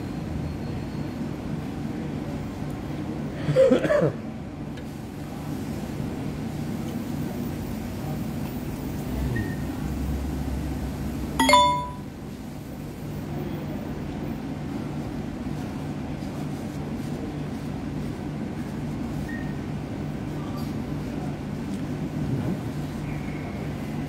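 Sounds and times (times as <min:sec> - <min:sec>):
sharp metallic ding: 0:11.4 - 0:12.1.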